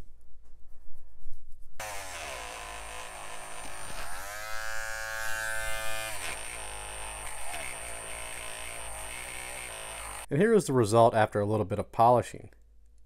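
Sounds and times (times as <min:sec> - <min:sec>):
rotary tool motor whine: 0:01.8 - 0:10.3.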